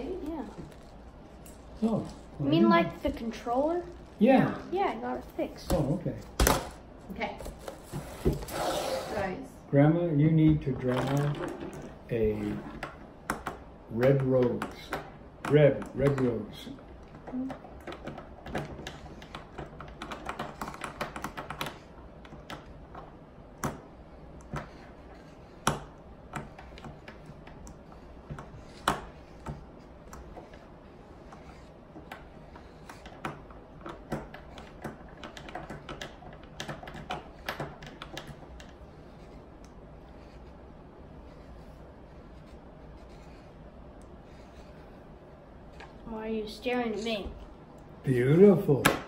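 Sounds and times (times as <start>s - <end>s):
marker scratching on paper: 17.9s - 22.7s, 23.8s - 46.0s.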